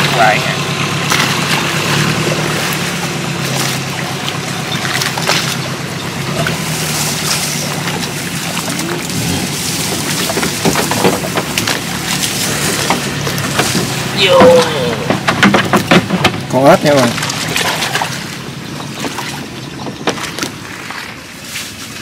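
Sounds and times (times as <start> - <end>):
small boat engine idling: 0.0 - 22.0
knocks from wooden hull: 9.8 - 18.1, 19.0 - 20.6.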